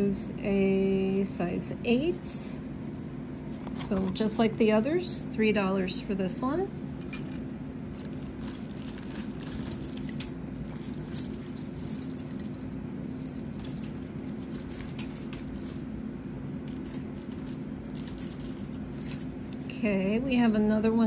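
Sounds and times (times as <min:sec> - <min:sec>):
metal bangles jingling: 0:07.0 - 0:15.9, 0:16.6 - 0:19.5.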